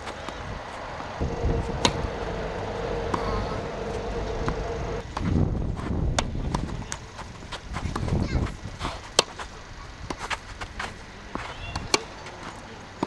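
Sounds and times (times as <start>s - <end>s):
steady motor hum: 0.1s - 8.5s
tennis ball struck by rackets: 1.2s - 5.4s.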